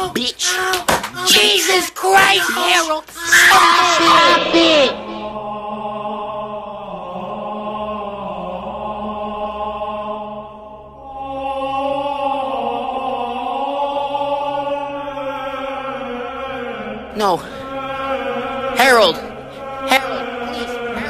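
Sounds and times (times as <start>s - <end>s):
chant-like choral voices: 0.0s - 21.0s.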